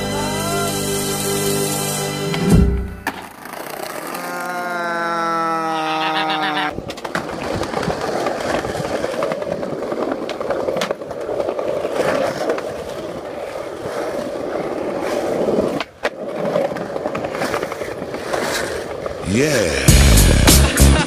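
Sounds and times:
skateboard wheels rolling on concrete: 0:00.0 - 0:21.0
skateboard clacks: 0:03.0 - 0:04.6, 0:06.5 - 0:19.2.

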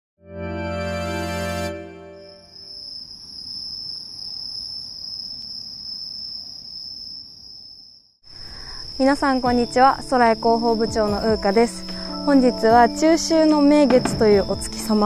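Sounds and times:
music chord: 0:00.2 - 0:02.5
crickets trilling: 0:02.2 - 0:15.0.

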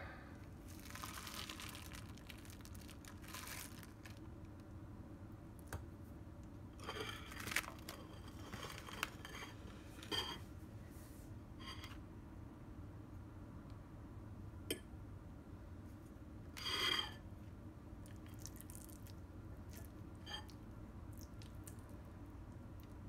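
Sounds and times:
fork scraping plate: 0:16.6 - 0:17.2.

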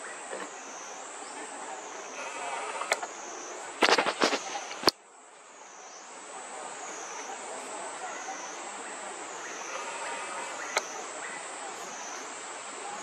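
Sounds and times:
high insect drone: 0:00.0 - 0:13.0
sharp cracks and pops: 0:03.8 - 0:05.0.

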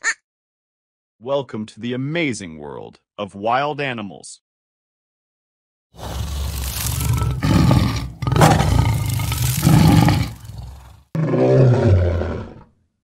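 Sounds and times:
big animal roaring: 0:06.0 - 0:12.7.

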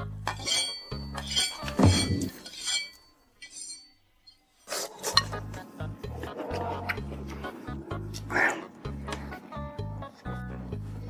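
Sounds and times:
bass-heavy music beat: 0:05.3 - 0:11.0.

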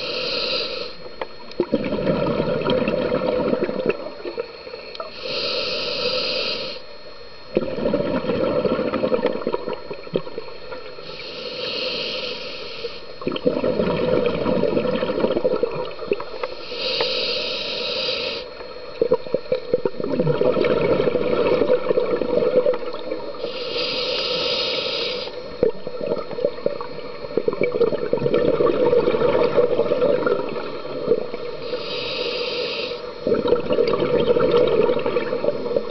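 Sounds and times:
regulator inhalation hisses: 0:00.0 - 0:01.1, 0:05.0 - 0:06.9, 0:11.0 - 0:13.2, 0:16.4 - 0:18.6, 0:23.4 - 0:25.5, 0:31.6 - 0:33.3
bubbling exhalation: 0:13.2 - 0:15.9, 0:19.1 - 0:23.0, 0:33.2 - 0:35.6.

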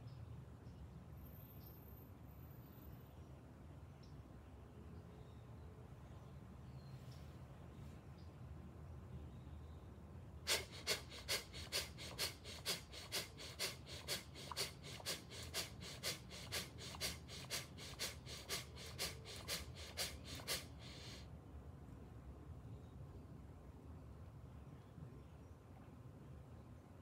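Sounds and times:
man breathing rapidly and forcefully: 0:10.5 - 0:21.3.

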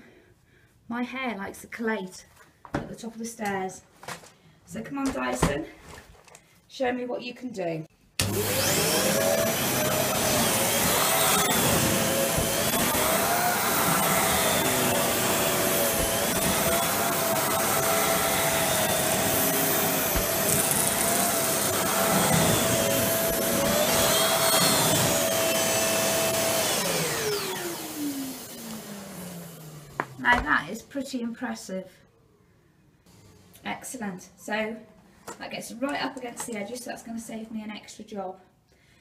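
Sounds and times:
vacuum cleaner running on carpet: 0:08.2 - 0:30.1.

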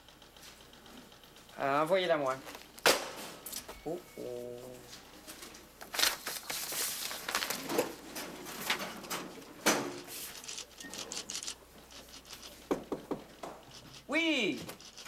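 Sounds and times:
papers rustling: 0:04.9 - 0:12.7.

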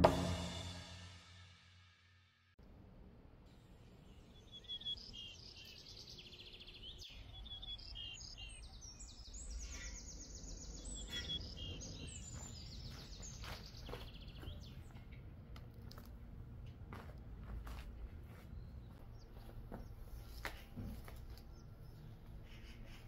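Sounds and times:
songbirds chirping and singing: 0:03.8 - 0:15.4, 0:18.3 - 0:23.0.

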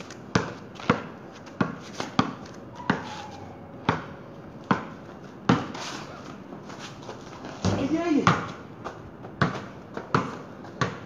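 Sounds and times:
basketball bouncing on concrete: 0:00.3 - 0:03.2, 0:03.8 - 0:05.8, 0:07.6 - 0:11.0.

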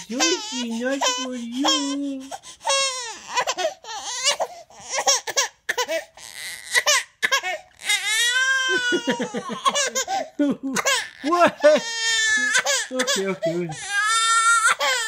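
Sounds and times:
baby gasping: 0:00.0 - 0:06.2, 0:09.6 - 0:11.1, 0:12.4 - 0:14.1
baby crying and squealing: 0:00.0 - 0:15.0.

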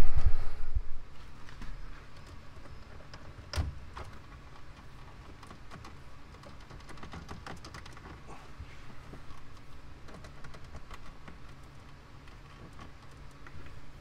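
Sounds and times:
plastic clicks and rattles: 0:02.1 - 0:08.2, 0:09.0 - 0:13.8.

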